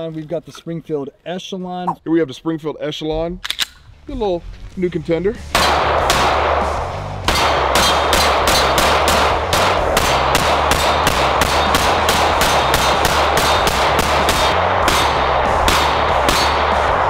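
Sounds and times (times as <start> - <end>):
pistol shots: 5.6 - 16.8.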